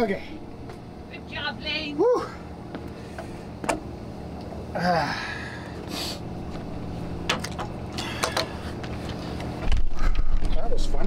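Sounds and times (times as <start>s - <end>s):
steady low hum: 0.0s - 11.0s
person exclaiming: 1.8s - 2.4s.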